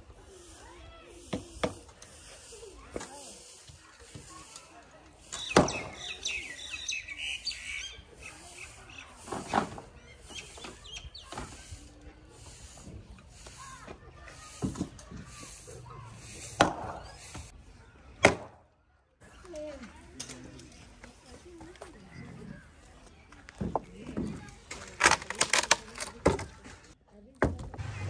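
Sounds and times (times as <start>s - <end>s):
birds chirping: 0.2s - 18.2s
axe chopping log: 16.6s - 17.0s, 18.2s - 18.6s.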